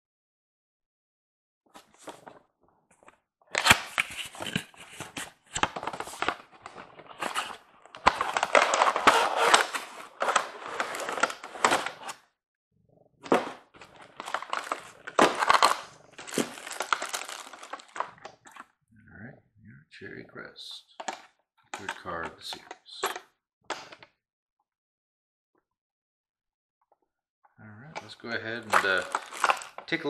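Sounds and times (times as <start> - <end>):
plastic bag crinkling: 14.0 - 18.6, 28.5 - 30.0.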